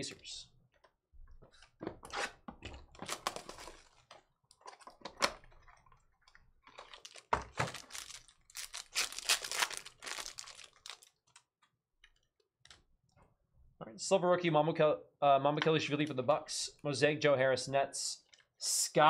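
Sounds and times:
cardboard rustling and tearing: 3.0s - 4.1s, 6.9s - 11.1s.

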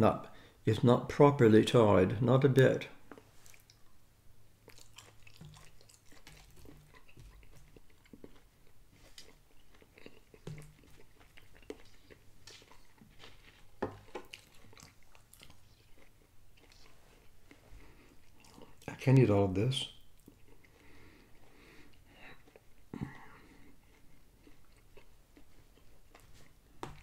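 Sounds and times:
man chewing food: 3.0s - 18.9s, 20.0s - 27.0s.

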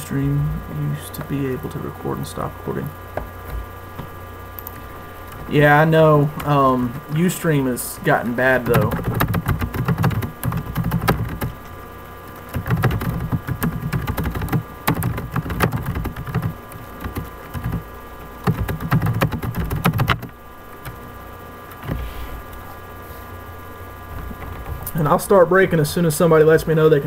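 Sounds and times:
computer keyboard typing: 8.5s - 11.6s, 12.3s - 21.0s.

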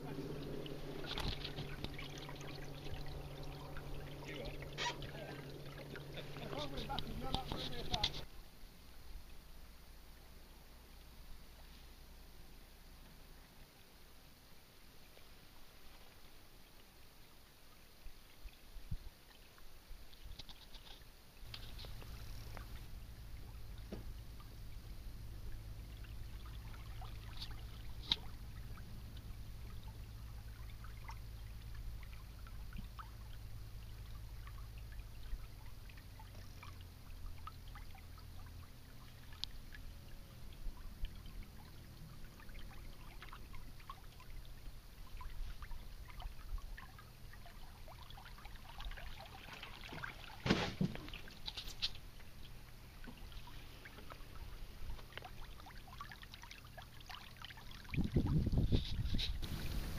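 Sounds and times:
low steady rumble: 0.0s - 59.9s
water trickling and dripping: 0.0s - 59.9s
loud water splash: 59.4s - 59.9s.

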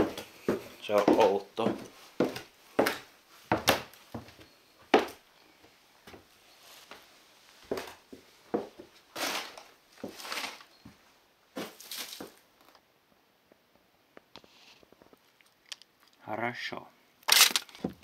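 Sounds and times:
footsteps on wooden stairs: 0.0s - 5.2s, 7.6s - 8.9s
debris crunching underfoot: 9.2s - 10.7s, 11.6s - 12.8s, 17.3s - 18.0s.

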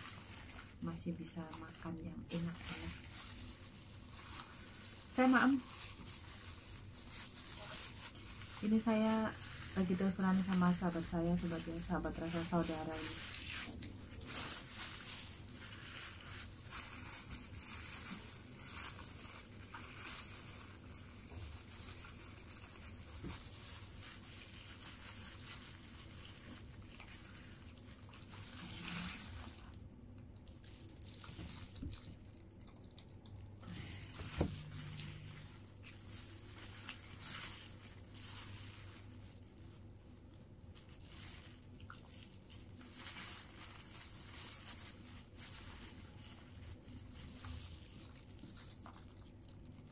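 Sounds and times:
gloved hand crinkling paper: 0.0s - 29.8s, 30.4s - 49.9s
soft crunches and scrapes: 0.0s - 29.8s.

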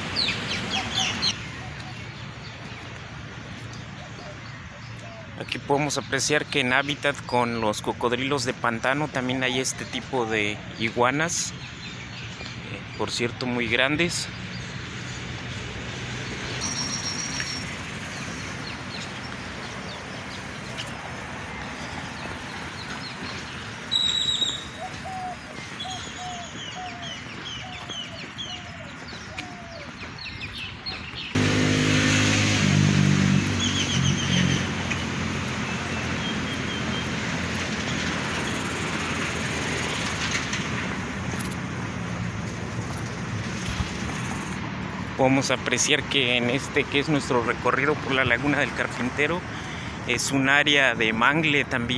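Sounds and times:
birds chirping: 0.0s - 51.9s
traffic noise: 0.0s - 51.9s
low bird call: 23.9s - 31.3s.

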